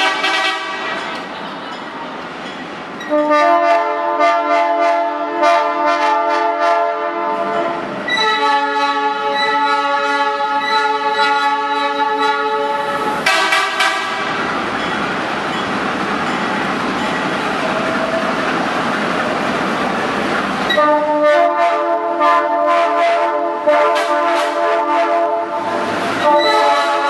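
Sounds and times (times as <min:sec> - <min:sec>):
train horn blasts: 0:00.0 - 0:01.0, 0:03.0 - 0:14.4, 0:20.7 - 0:27.0.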